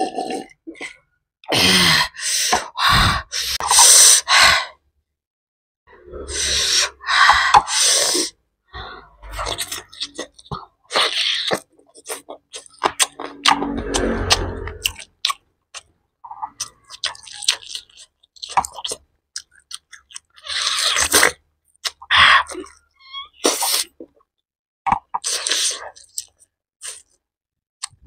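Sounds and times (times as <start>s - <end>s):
person gasping and exhaling: 1.5s - 4.8s
eating and chewing clicks: 9.4s - 13.6s, 14.8s - 22.9s, 24.9s - 27.2s.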